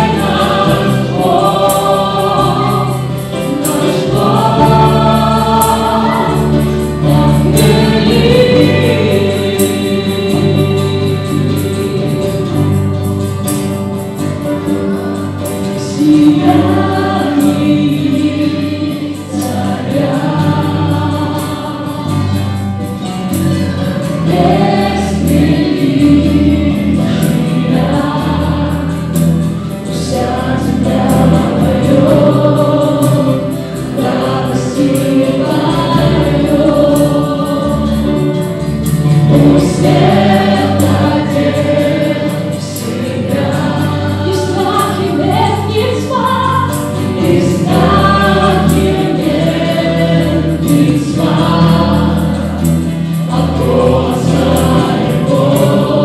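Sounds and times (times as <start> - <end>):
acoustic guitar: 0.0 - 56.0
electric guitar: 0.0 - 56.0
group singing into microphones: 0.0 - 56.0
keyboard: 0.0 - 56.0.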